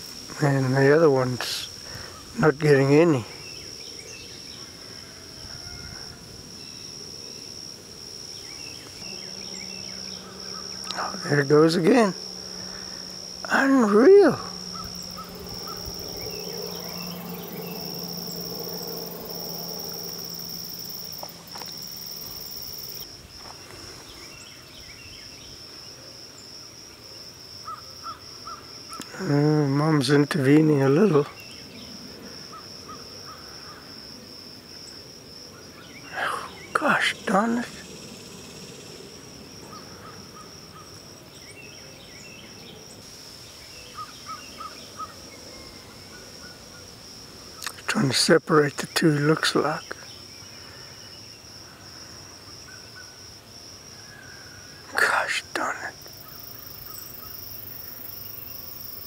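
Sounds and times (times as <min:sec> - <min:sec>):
insect trilling: 0:00.0 - 0:59.0
insect trilling high: 0:08.4 - 0:23.1
low hum: 0:12.2 - 0:23.0
bird chirps: 0:14.6 - 0:23.0.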